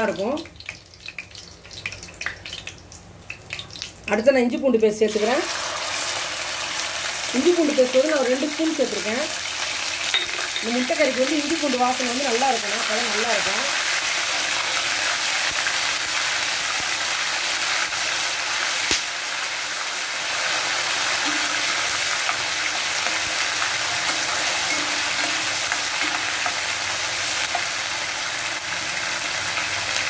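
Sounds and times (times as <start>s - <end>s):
spices sizzling in hot oil: 0.0s - 30.0s
spatula stirring in pan: 20.8s - 28.3s.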